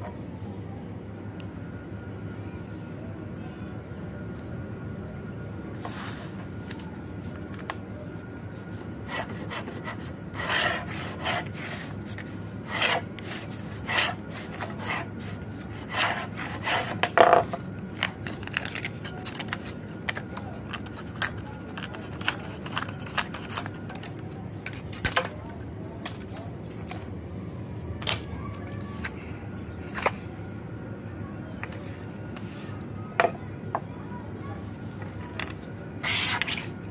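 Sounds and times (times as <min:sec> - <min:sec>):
cutter scraping wood veneer: 0:09.1 - 0:12.0.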